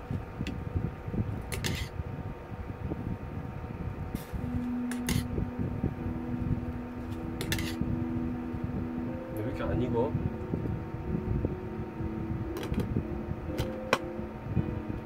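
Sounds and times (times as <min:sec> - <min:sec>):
noisy hum: 0:00.0 - 0:15.0
steady tone: 0:00.0 - 0:15.0.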